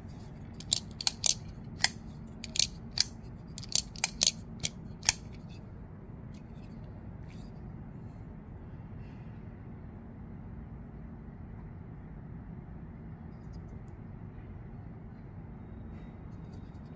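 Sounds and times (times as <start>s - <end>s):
folding knife metallic clicks: 0.6s - 5.4s.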